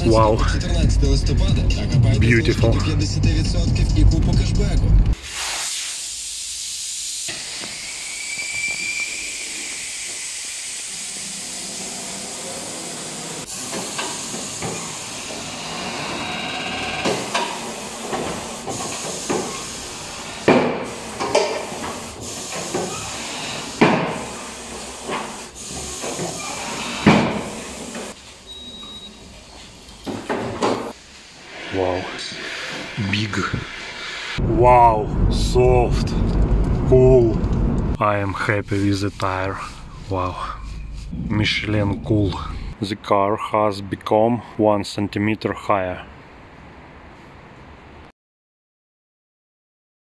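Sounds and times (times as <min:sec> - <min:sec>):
steady hiss: 0:05.2 - 0:15.7, 0:17.2 - 0:28.4.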